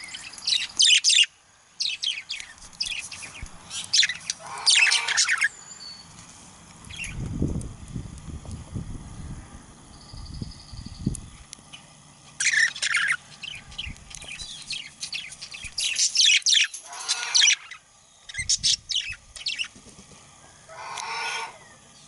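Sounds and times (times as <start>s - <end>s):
budgerigar chirping and warbling: 3.7s - 5.5s, 12.4s - 13.7s, 15.8s - 19.7s, 20.7s - 21.7s.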